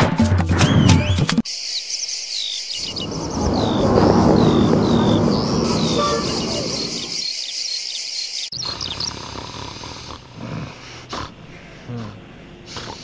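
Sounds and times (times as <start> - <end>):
high chirping calls: 0.8 - 9.2
low rumbling background: 2.8 - 7.2.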